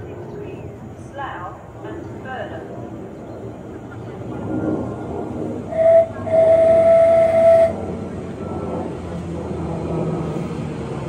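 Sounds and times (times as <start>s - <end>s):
train rumbling: 0.0s - 11.0s
electric train horn: 5.7s - 7.8s.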